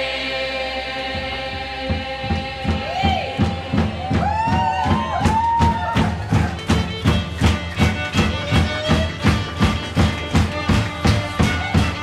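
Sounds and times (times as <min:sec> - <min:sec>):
driving drum beat: 0:01.1 - 0:12.0
fiddles playing sliding melody: 0:06.2 - 0:12.0.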